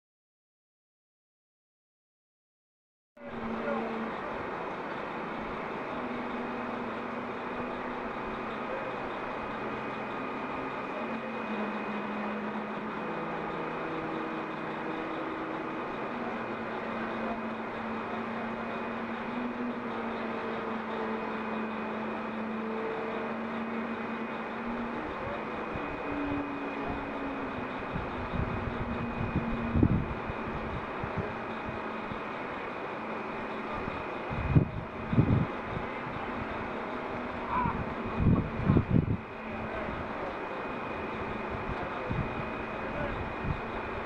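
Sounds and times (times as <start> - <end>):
faint high whine: 3.2 - 44.0
truck engine and hydraulics running: 3.2 - 44.0
wind buffeting microphone: 27.9 - 31.4, 33.8 - 36.2, 37.5 - 40.0.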